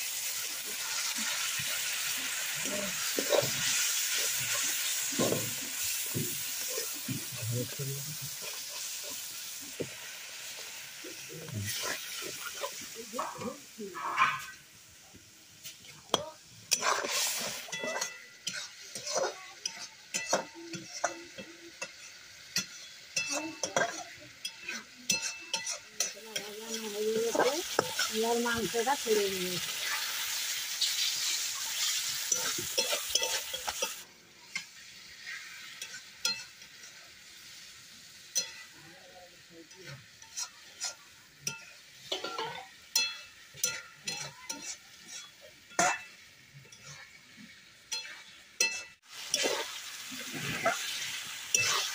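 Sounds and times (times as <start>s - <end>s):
chicken sizzling in hot oil: 0.0s - 51.9s
metal spatula scraping pot: 0.4s - 9.9s, 11.1s - 14.6s, 16.1s - 37.0s, 39.8s - 51.9s
spatula clinking against pot: 16.1s - 28.1s, 31.1s - 34.7s, 35.4s - 37.0s, 38.3s - 38.8s, 39.8s - 47.1s, 47.9s - 49.7s, 50.4s - 51.9s.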